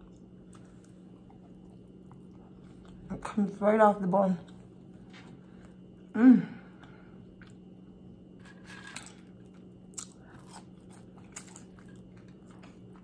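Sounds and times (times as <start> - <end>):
person chewing food: 0.0 - 3.1, 6.7 - 8.4, 9.1 - 13.0.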